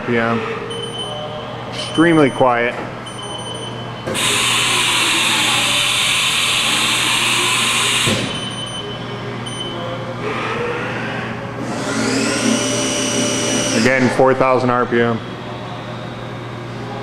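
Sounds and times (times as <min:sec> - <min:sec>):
low machine hum: 0:00.0 - 0:17.0
high spindle whine: 0:01.8 - 0:09.6, 0:10.2 - 0:17.0
milling machine running: 0:04.1 - 0:08.3, 0:11.6 - 0:14.1.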